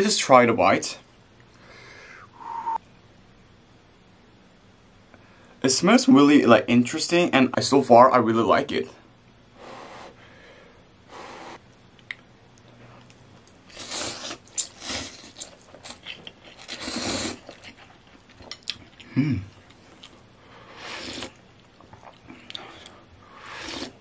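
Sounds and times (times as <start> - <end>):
wet chewing with mouth clicks: 11.9 - 20.2
person slurping noodles: 16.6 - 17.5, 20.7 - 21.4, 22.7 - 24.0.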